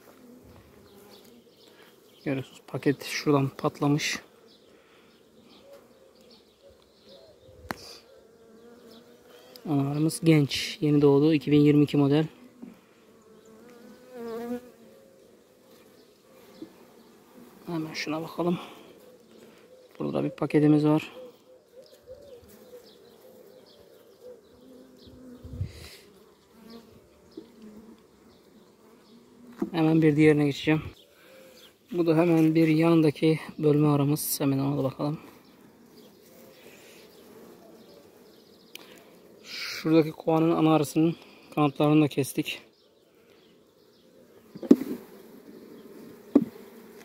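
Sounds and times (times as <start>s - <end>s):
bees buzzing: 0.0s - 7.1s, 7.7s - 10.5s, 11.2s - 33.0s, 33.6s - 42.0s, 43.2s - 47.0s
sharp knock: 44.6s - 45.0s.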